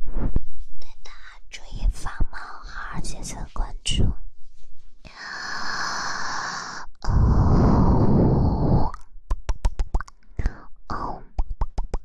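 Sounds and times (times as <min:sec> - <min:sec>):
woman breathing into microphone: 0:05.0 - 0:08.8.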